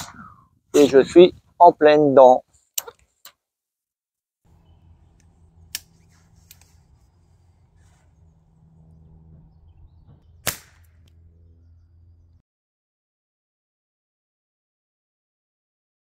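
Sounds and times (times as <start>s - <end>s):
suppressed rifle shot: 10.4s - 11.0s.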